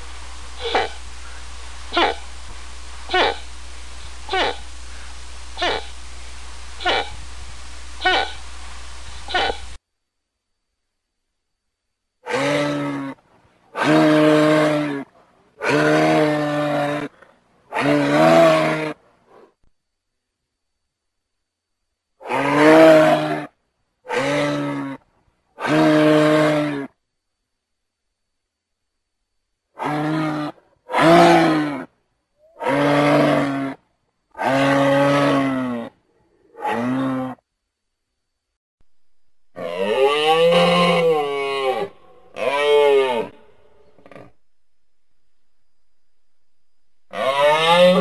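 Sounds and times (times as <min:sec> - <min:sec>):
moose calling: 0:00.6 - 0:02.4, 0:03.1 - 0:06.1, 0:06.8 - 0:07.2, 0:08.0 - 0:09.8, 0:39.6 - 0:44.4, 0:47.1 - 0:48.0.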